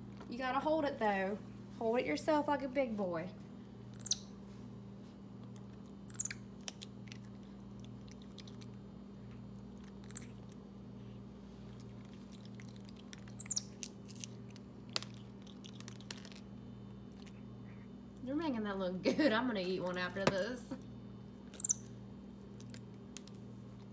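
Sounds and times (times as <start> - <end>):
steady low hum: 0.0 - 23.9
monkey biting and chewing: 5.6 - 10.6, 11.6 - 16.5.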